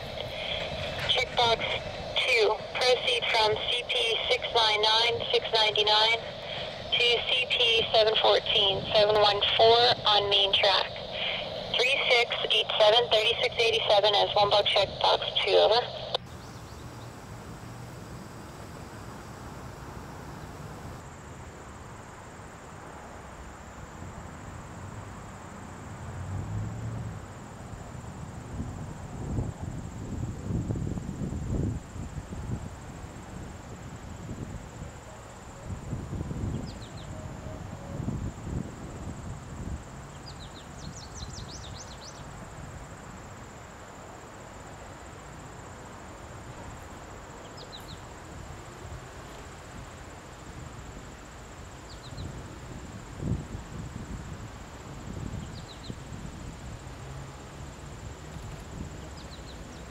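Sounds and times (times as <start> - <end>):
low wind rumble: 0.0 - 21.1, 24.6 - 44.0
high insect drone: 0.0 - 59.9.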